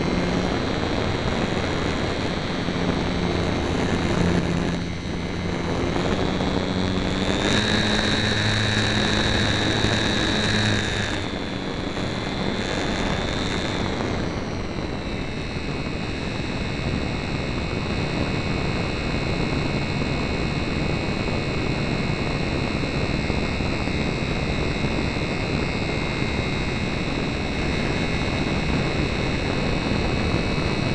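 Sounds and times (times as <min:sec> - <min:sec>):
model plane motor whining: 0:00.0 - 0:30.9.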